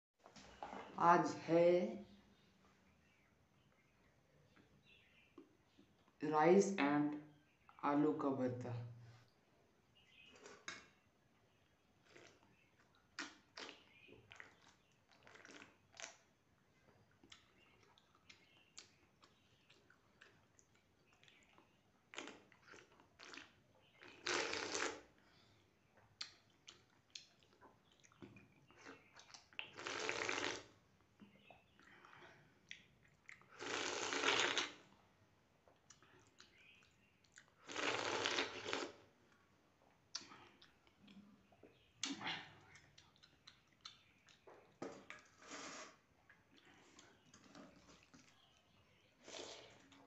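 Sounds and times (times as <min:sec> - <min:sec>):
chewing: 0:12.0 - 0:25.1, 0:25.9 - 0:30.7, 0:31.4 - 0:34.8, 0:35.6 - 0:50.0
wet mouth clicks: 0:12.1 - 0:16.2, 0:26.2 - 0:30.7, 0:31.6 - 0:34.8, 0:35.7 - 0:39.0, 0:40.1 - 0:45.3
person slurping: 0:24.1 - 0:25.1, 0:29.6 - 0:30.7, 0:33.4 - 0:34.8, 0:37.6 - 0:39.0, 0:45.3 - 0:46.1, 0:49.2 - 0:50.0.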